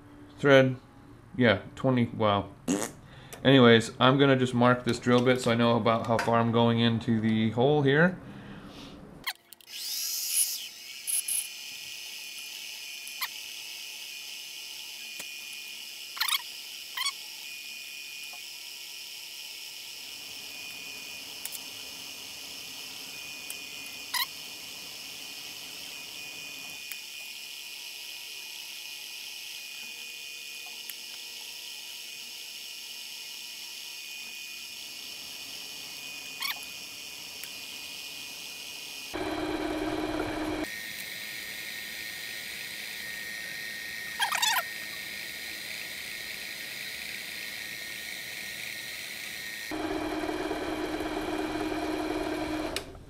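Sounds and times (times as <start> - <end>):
lathe high whine: 38.9 - 53.0.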